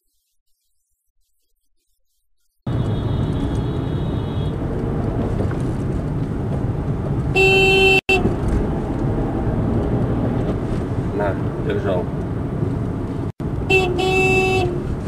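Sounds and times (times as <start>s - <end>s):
car horn honking: 2.7s - 4.6s, 7.3s - 8.3s, 13.6s - 14.9s
car engine and road noise: 2.7s - 15.0s.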